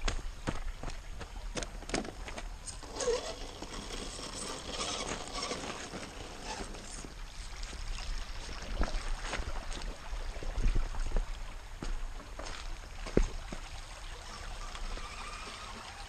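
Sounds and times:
footsteps crunching on gravel: 10.6s - 13.7s.

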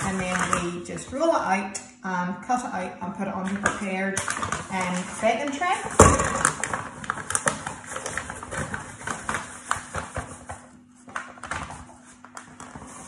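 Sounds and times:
paper bag crinkling: 4.3s - 13.0s.

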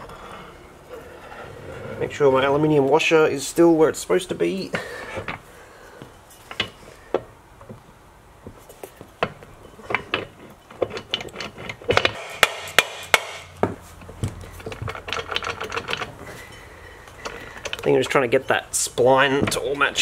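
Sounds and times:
metal parts knocking and rubbing: 6.3s - 7.8s, 8.4s - 20.0s.

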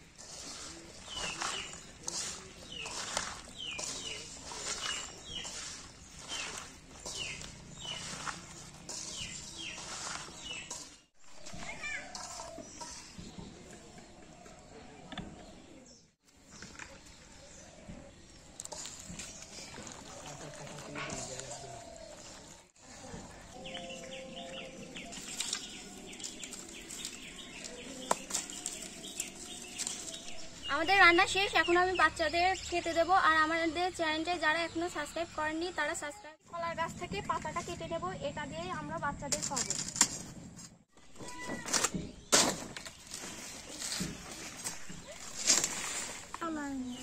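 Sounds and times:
hand squelching vegetables in basin: 0.0s - 13.4s, 18.2s - 31.4s, 42.8s - 47.0s
small birds chirping: 0.0s - 39.8s, 41.0s - 47.0s.

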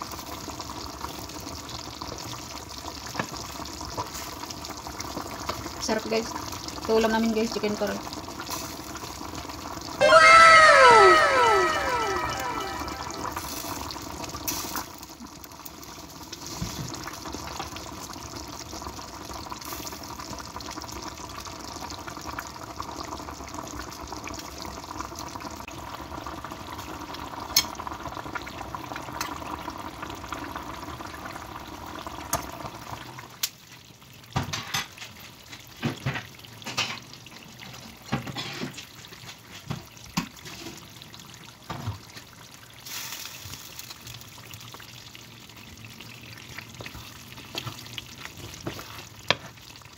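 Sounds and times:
sauce bubbling and popping: 38.8s - 49.9s.

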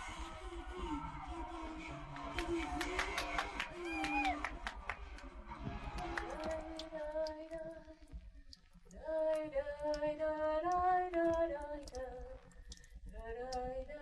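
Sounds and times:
person singing unaccompanied: 5.9s - 8.2s, 8.9s - 12.5s, 13.1s - 14.0s.

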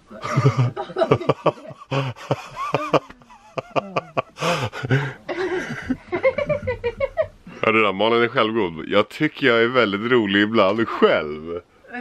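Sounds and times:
person laughing: 0.2s - 7.3s
breathy gasps: 4.4s - 5.8s.

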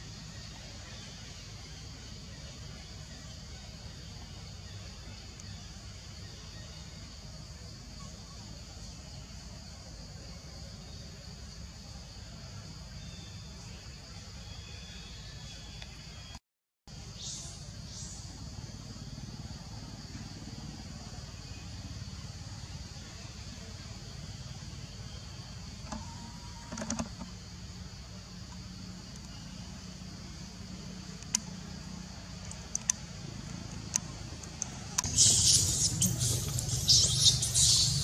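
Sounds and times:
even high hiss: 0.0s - 38.0s
sharp clicks: 31.2s - 31.6s, 32.4s - 37.8s.

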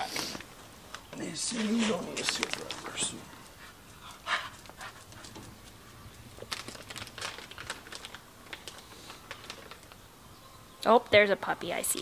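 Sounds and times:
dog claws clicking on concrete: 2.1s - 2.8s, 3.4s - 8.8s.

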